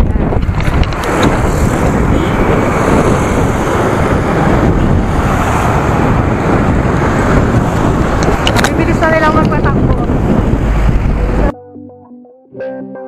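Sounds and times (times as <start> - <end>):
wind buffeting microphone: 0.0 - 11.5.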